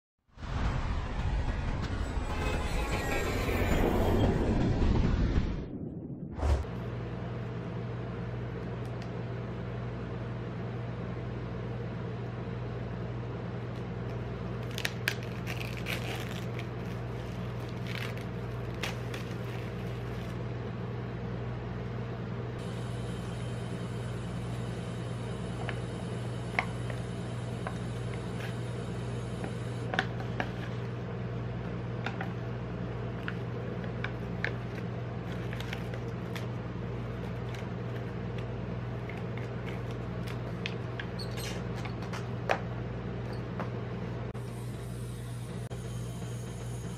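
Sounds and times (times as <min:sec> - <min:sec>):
refrigeration unit humming: 0:06.4 - 0:46.9
paper lid crinkling: 0:14.6 - 0:20.4, 0:34.4 - 0:40.8
plastic sachets handled: 0:14.6 - 0:20.4, 0:34.1 - 0:40.9.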